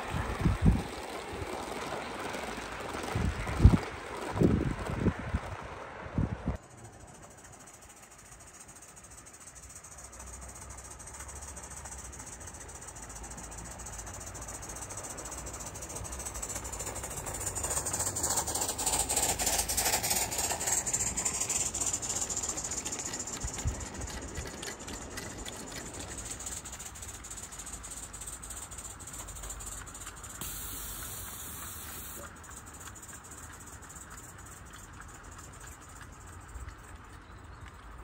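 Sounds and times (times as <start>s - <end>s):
fast steam exhaust ticks: 0.0s - 5.8s, 6.6s - 38.0s
steam hiss: 13.0s - 23.8s, 26.5s - 32.5s.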